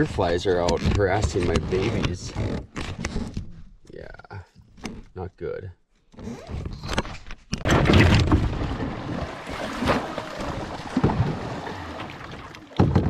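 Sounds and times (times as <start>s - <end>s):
water rushing along canoe hull: 7.8s - 13.0s.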